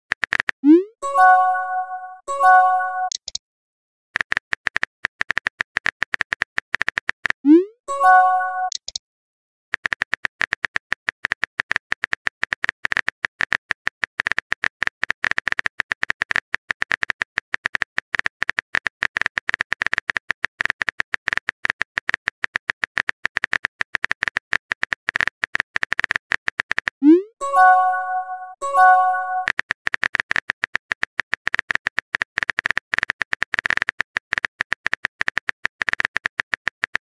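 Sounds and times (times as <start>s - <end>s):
keyboard typing clicks: 0.1s - 3.4s, 4.2s - 9.0s, 9.8s - 37.0s
message chime: 0.7s - 3.1s, 7.9s - 8.8s, 27.0s - 29.5s.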